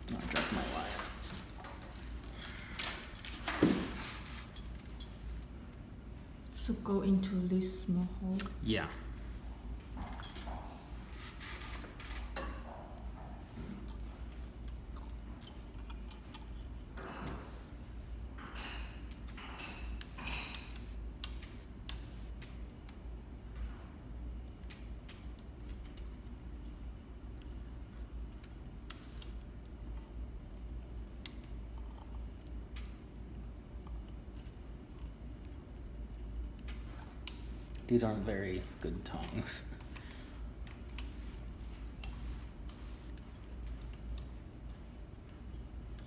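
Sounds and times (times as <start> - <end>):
faint low hum: 0.0 - 46.0
metal tweezers clicking and scraping: 15.0 - 17.0, 18.3 - 22.3, 28.2 - 38.5, 39.2 - 46.0.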